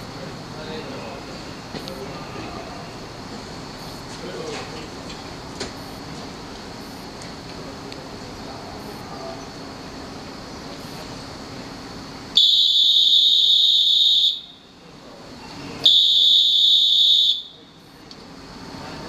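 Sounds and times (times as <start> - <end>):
standing train humming: 0.0 - 19.0
shrill whistle blasts: 12.4 - 14.6, 15.8 - 17.6.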